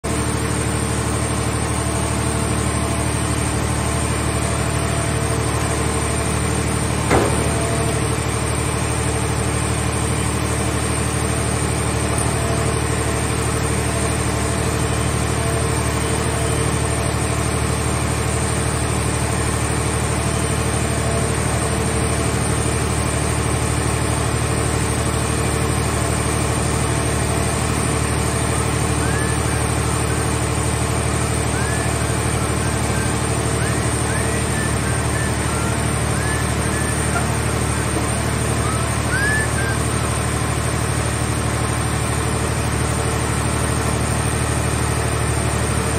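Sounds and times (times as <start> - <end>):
hydraulic machinery droning: 0.1 - 45.9
sharp metal clank: 7.1 - 8.0.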